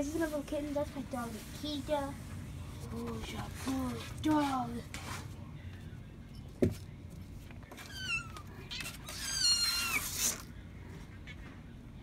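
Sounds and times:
kitten meowing: 7.9 - 10.2.

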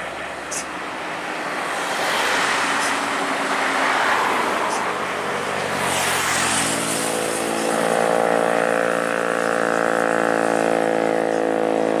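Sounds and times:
heavy vehicle engine humming: 0.0 - 12.0
truck passing with tyre noise: 0.0 - 12.0.

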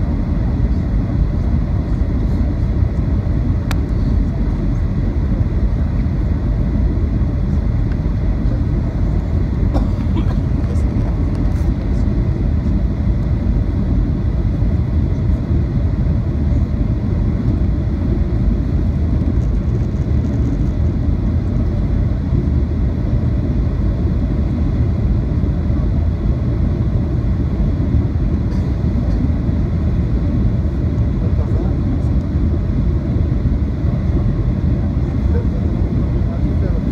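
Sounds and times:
jet engines rumbling: 0.0 - 36.9.

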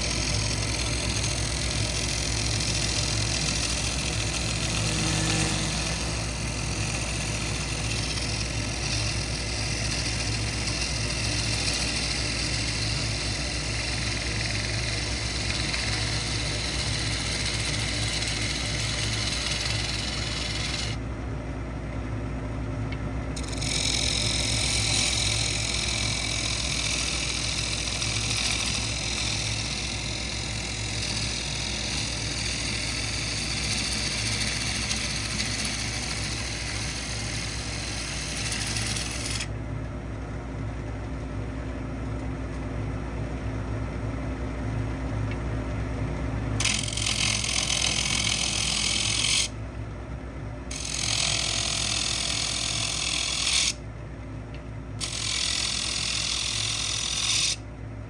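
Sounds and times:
tool scraping wood with hiss: 0.0 - 21.0, 23.4 - 39.5, 46.6 - 49.6, 50.7 - 53.8, 55.0 - 57.6
wood lathe humming: 0.0 - 21.0, 23.4 - 39.6, 46.6 - 49.6, 50.7 - 53.8, 55.0 - 57.6.

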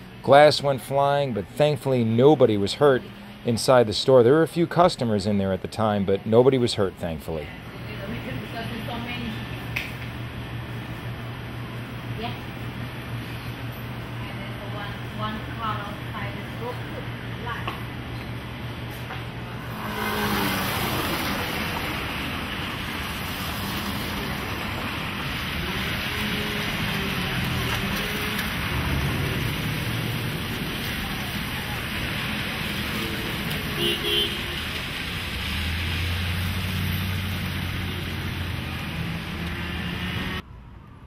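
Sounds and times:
street traffic: 0.0 - 41.0
engine rumble: 7.0 - 41.0
tyres hissing on wet road: 19.6 - 40.4.

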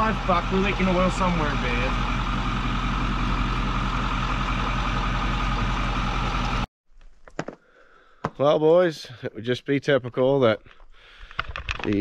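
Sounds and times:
diesel engine idling: 0.0 - 6.7.

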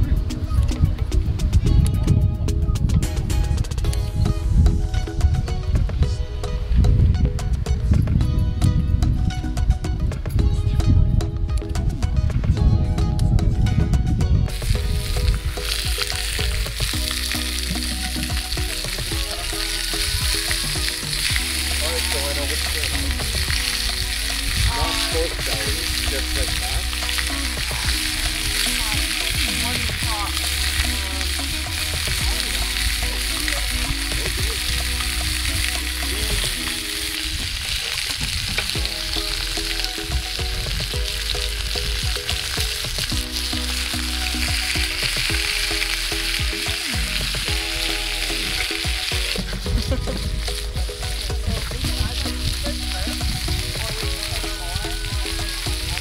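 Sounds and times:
background music: 0.0 - 56.0
meat sizzling in a pan: 14.5 - 56.0.

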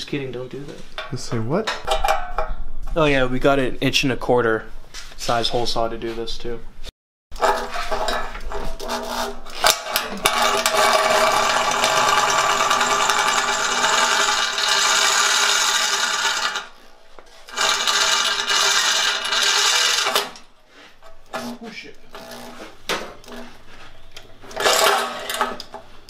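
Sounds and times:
electric drill under load: 9.6 - 16.8, 17.5 - 20.4.

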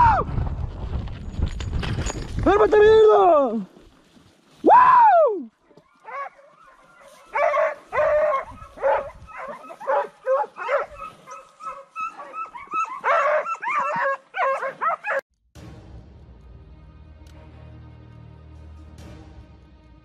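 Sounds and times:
dog barking and yelping: 5.9 - 15.2.

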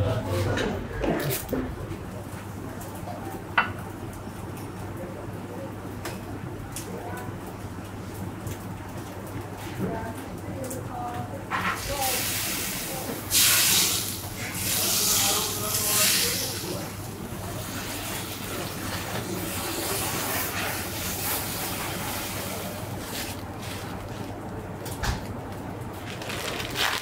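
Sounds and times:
food sizzling on hot surface: 11.6 - 23.8.

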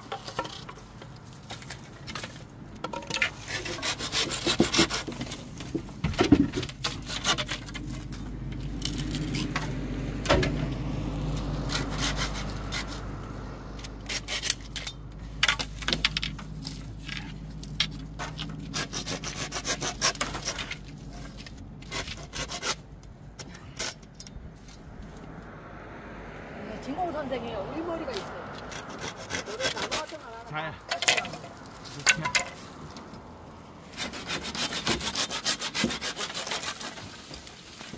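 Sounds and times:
hand saw cutting bamboo: 3.1 - 10.7, 11.3 - 13.2, 13.8 - 24.0, 28.5 - 33.0, 33.8 - 37.9.

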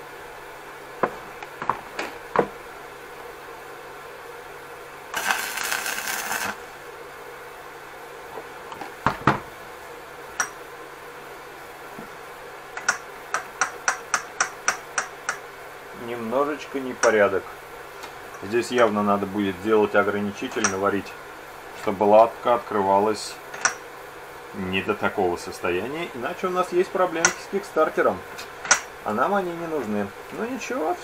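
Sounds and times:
hissing burst: 5.1 - 6.7.

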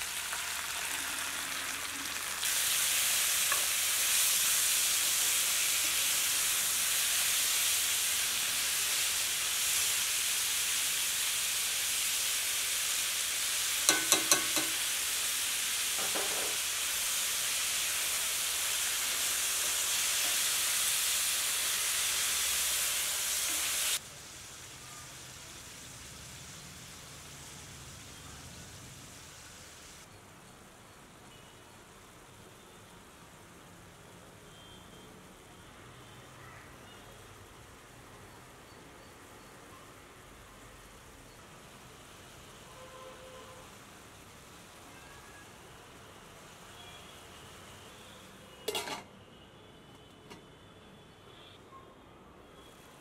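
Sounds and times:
meat sizzling in a skillet: 0.0 - 30.1, 43.4 - 48.0.

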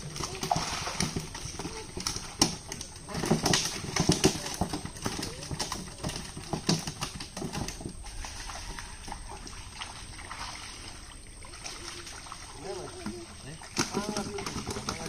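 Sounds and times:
sloshing in muddy water: 0.0 - 15.0.

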